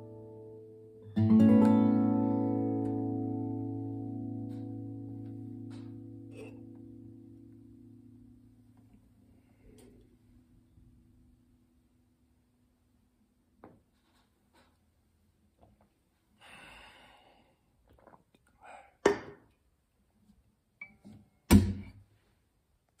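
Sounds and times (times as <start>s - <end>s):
acoustic guitar low note: 0.1s - 8.8s.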